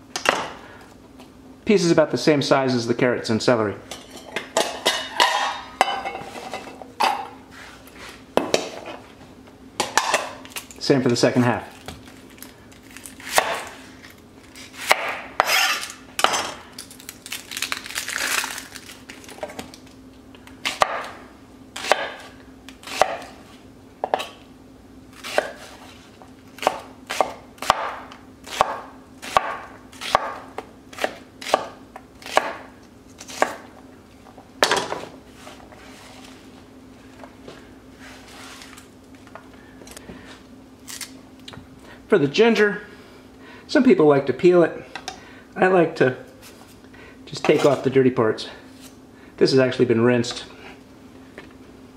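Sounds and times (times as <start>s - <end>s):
knife slicing onion: 13.2s - 13.8s, 14.5s - 16.0s, 20.6s - 21.2s, 21.8s - 23.4s, 25.1s - 33.6s
knife chopping on wooden board: 13.3s - 13.7s, 14.8s - 15.6s, 20.7s - 21.1s, 21.8s - 23.3s, 25.2s - 25.7s, 26.6s - 32.7s, 33.3s - 33.6s.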